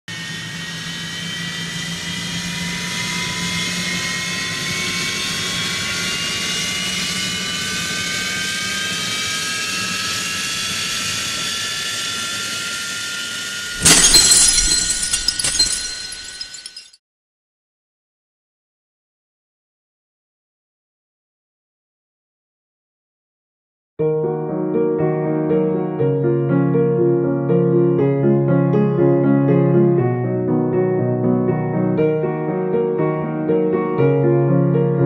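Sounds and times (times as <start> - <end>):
debris clattering: 13.8 - 17.0
loud shattering crash: 13.8 - 17.0.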